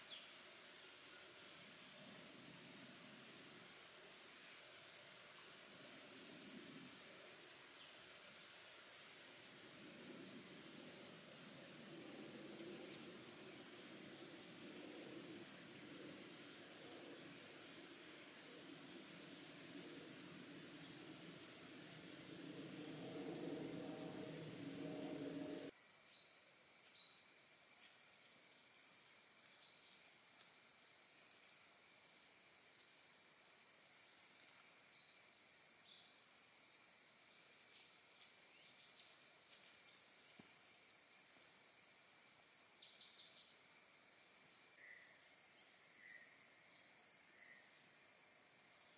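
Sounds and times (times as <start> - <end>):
insect chorus drone and trill: 0.0 - 48.9
short insect chirps: 18.4 - 26.2.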